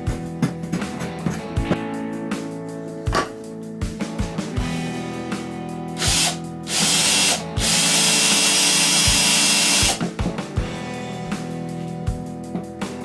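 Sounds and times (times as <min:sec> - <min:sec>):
electric drill boring into wood: 0:06.0 - 0:10.0.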